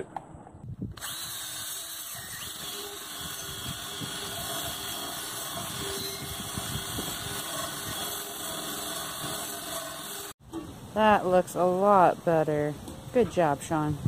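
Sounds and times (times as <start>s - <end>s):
drill grinding metal: 1.0s - 10.4s.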